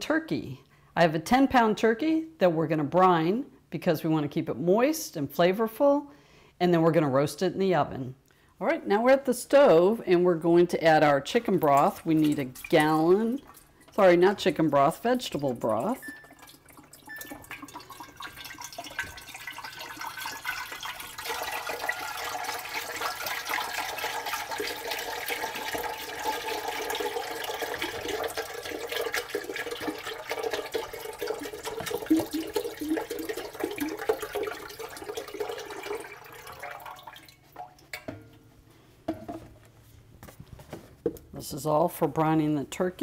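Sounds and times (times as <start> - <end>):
broth pouring into pot: 12.3 - 38.1.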